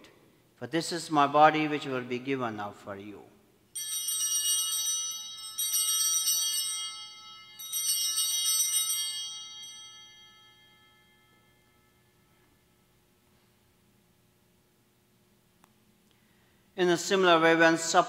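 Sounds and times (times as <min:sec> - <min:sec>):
small bells jingling: 0:03.7 - 0:12.5.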